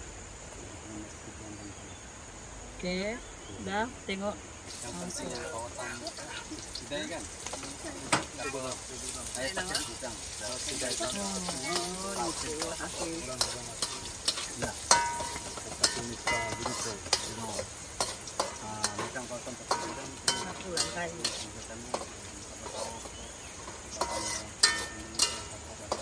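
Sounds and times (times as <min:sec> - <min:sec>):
food sizzling in oil: 0:03.8 - 0:26.0
metal spatula scraping a wok: 0:07.4 - 0:26.0.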